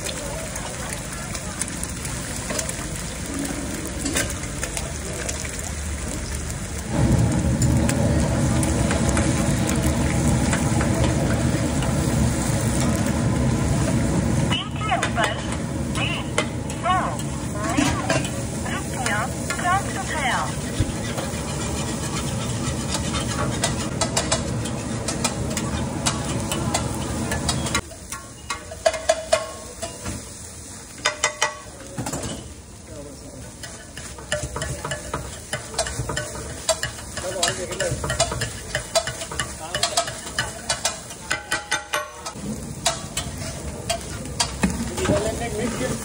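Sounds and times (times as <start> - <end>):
food sizzling on griddle: 0.0 - 46.0
metal spatula scraping griddle: 17.2 - 29.2.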